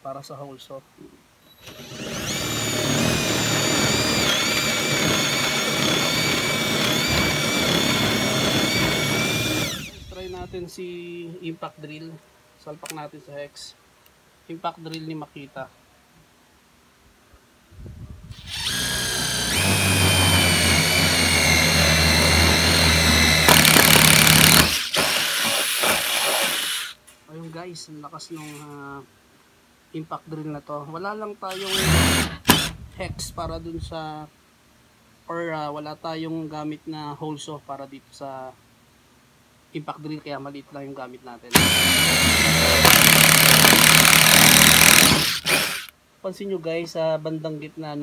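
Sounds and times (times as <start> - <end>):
drill motor whine: 1.5 - 10.6, 18.3 - 27.0, 31.5 - 32.8, 41.5 - 45.9
hole saw cutting wood: 1.6 - 10.5, 18.4 - 27.0, 31.5 - 32.8, 41.5 - 45.9.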